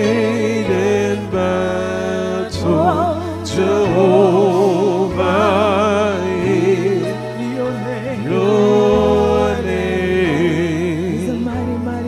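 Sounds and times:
low accompaniment notes: 0:00.0 - 0:12.0
woman singing gospel: 0:00.7 - 0:12.0.

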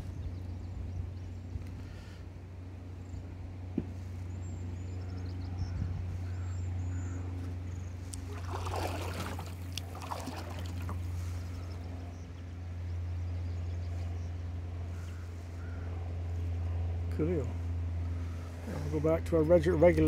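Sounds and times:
steady low hum: 0:00.0 - 0:20.0
water drips: 0:08.1 - 0:11.0
paddle water splashing: 0:08.1 - 0:11.8.

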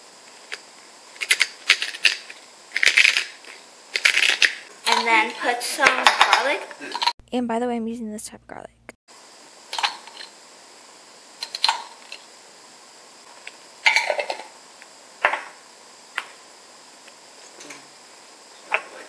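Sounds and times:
spice shaker shaking and clicking: 0:01.2 - 0:04.6.

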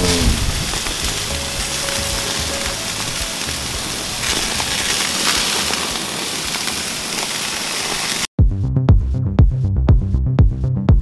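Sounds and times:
meat sizzling on a grill: 0:00.0 - 0:08.3.

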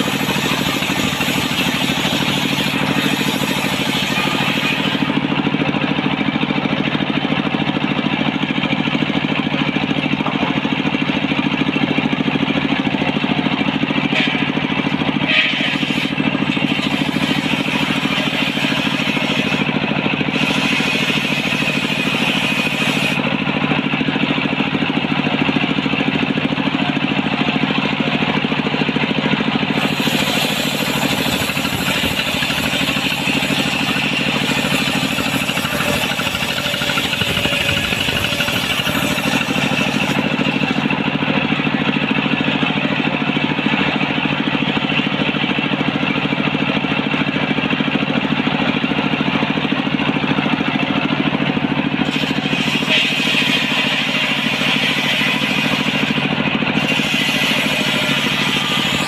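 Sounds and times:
circular saw cutting wood: 0:00.0 - 0:46.2, 0:51.1 - 0:59.0
stationary engine running: 0:00.0 - 0:59.0.

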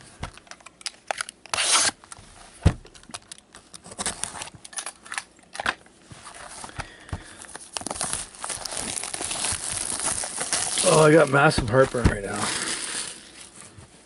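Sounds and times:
box cutter slitting shrink wrap: 0:00.8 - 0:02.0, 0:07.8 - 0:13.4
plastic wrap crinkling: 0:06.4 - 0:13.8.

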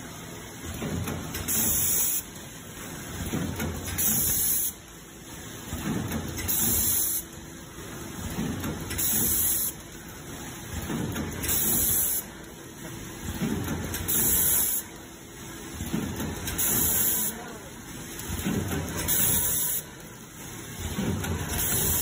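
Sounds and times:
faint steady machine hum: 0:00.0 - 0:22.0
packing machine hiss: 0:01.4 - 0:02.3, 0:03.9 - 0:04.8, 0:06.4 - 0:07.2, 0:09.0 - 0:09.8, 0:11.4 - 0:12.3, 0:14.0 - 0:14.9, 0:16.5 - 0:17.4, 0:19.0 - 0:19.8, 0:21.5 - 0:22.0.

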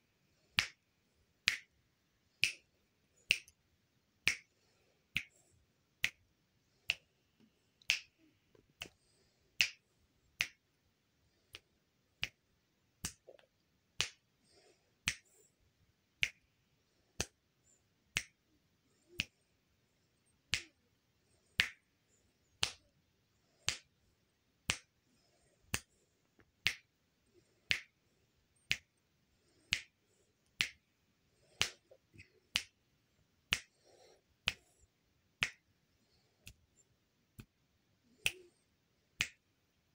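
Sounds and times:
fingers snapping: 0:00.6 - 0:00.8, 0:01.4 - 0:01.7, 0:02.4 - 0:02.7, 0:03.3 - 0:03.6, 0:04.2 - 0:04.5, 0:09.6 - 0:09.8, 0:10.4 - 0:10.6, 0:13.0 - 0:14.2, 0:15.0 - 0:15.4, 0:18.1 - 0:18.4, 0:20.5 - 0:20.8, 0:21.6 - 0:21.8, 0:23.6 - 0:23.9, 0:24.6 - 0:24.9, 0:26.6 - 0:26.9, 0:27.7 - 0:27.9, 0:29.6 - 0:29.9, 0:30.5 - 0:30.8, 0:31.5 - 0:32.8, 0:33.5 - 0:34.8, 0:35.4 - 0:35.7, 0:37.4 - 0:38.6, 0:39.2 - 0:39.4.

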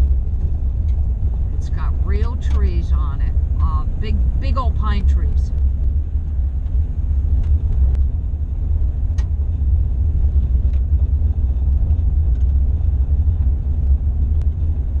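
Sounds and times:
tyres and engine rumbling on gravel: 0:00.0 - 0:15.0.

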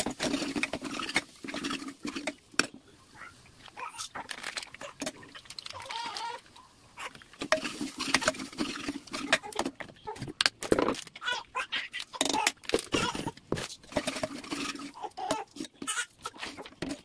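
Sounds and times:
ladle scraping and clinking pot: 0:00.0 - 0:02.8, 0:07.3 - 0:09.8, 0:13.8 - 0:17.0.

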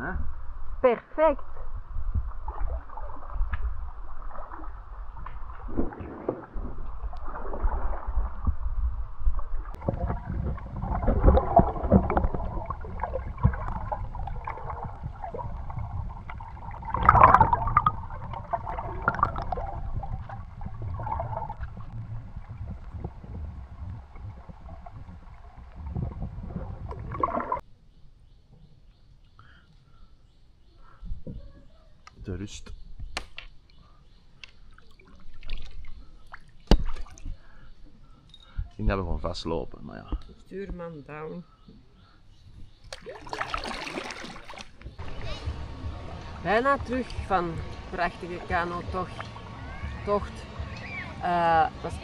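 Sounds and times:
low rumble: 0:01.4 - 0:27.6, 0:45.0 - 0:52.0
kayak paddles in water: 0:01.6 - 0:27.6, 0:33.7 - 0:38.2, 0:42.4 - 0:52.0
water sloshing around hull: 0:01.6 - 0:27.6, 0:33.7 - 0:38.8, 0:41.5 - 0:51.0.

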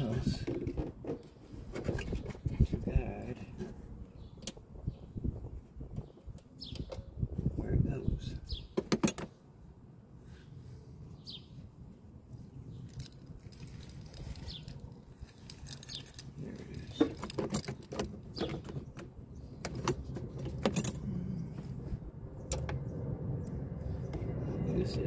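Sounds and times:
metal tool and parts clinking: 0:12.8 - 0:18.7, 0:19.7 - 0:21.2.

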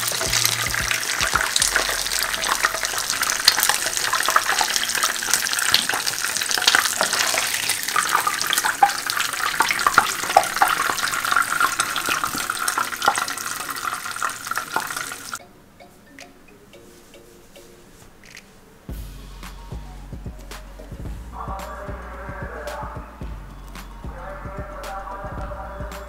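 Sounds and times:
dough deep-frying in hot oil: 0:00.0 - 0:15.4.

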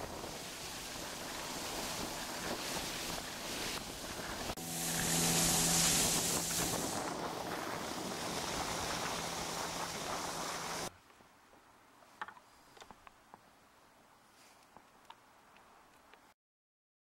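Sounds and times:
outboard motor: 0:00.0 - 0:10.9
water rushing along hull: 0:00.0 - 0:10.9
wind on microphone: 0:00.0 - 0:10.9.

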